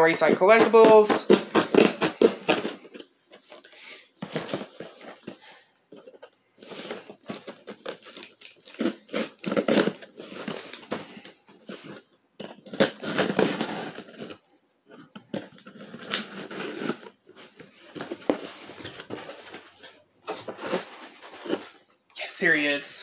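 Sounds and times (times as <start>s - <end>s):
rustling and crinkling: 0.0s - 22.1s.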